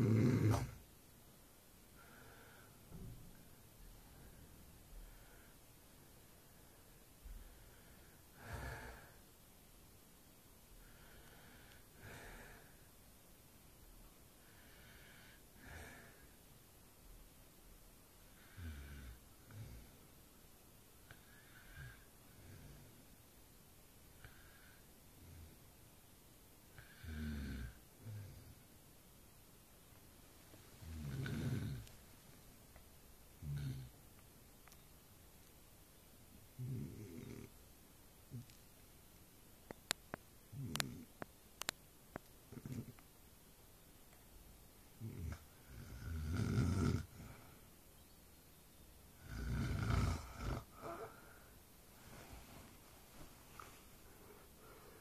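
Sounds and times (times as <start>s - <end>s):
loud snores: 0.0s - 0.8s, 26.8s - 28.4s, 30.8s - 31.9s, 33.4s - 33.9s, 36.6s - 37.5s, 45.0s - 47.4s, 49.2s - 51.2s
man breathing while asleep: 1.9s - 9.4s, 10.7s - 13.0s, 14.3s - 16.5s, 21.0s - 23.2s, 24.1s - 25.7s, 26.7s - 28.7s, 49.2s - 55.0s
trailing breath: 50.7s - 55.0s.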